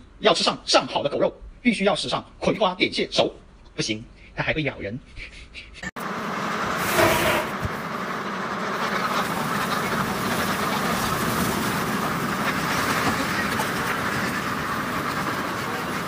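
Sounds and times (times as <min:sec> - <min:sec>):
many ducks quacking: 0:06.1 - 0:16.0.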